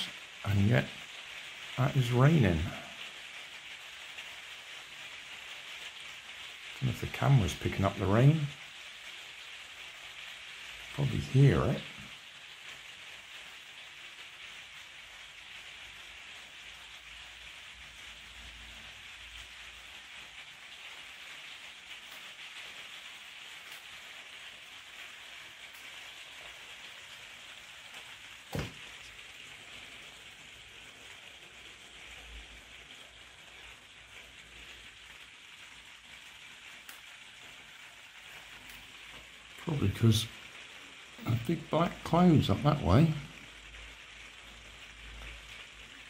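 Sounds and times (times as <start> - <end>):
rain on glass roof: 0.0 - 46.0
sharp tap: 28.5 - 28.8.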